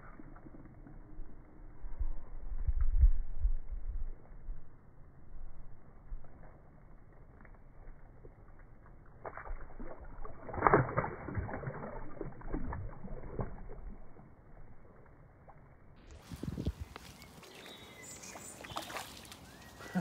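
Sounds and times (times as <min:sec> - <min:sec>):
water splashing in shallows: 0:08.9 - 0:20.0.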